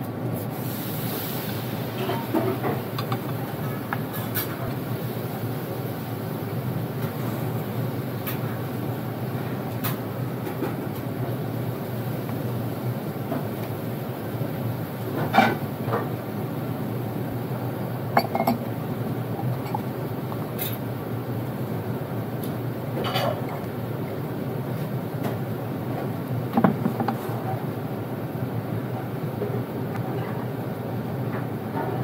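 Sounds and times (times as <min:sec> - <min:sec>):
low room hum: 0:00.0 - 0:32.0
chopsticks knocking dishes: 0:03.0 - 0:04.0, 0:18.2 - 0:18.7
tableware clinking: 0:18.2 - 0:18.7, 0:19.4 - 0:20.0.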